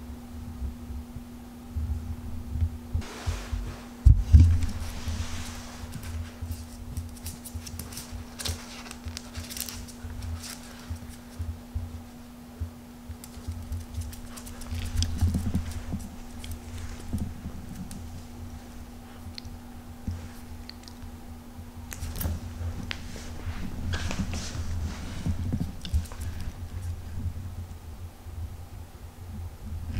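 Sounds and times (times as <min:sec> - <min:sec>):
dog claws clicking on hard floor: 0:05.9 - 0:11.4, 0:13.1 - 0:18.1, 0:21.9 - 0:23.0, 0:25.4 - 0:27.0.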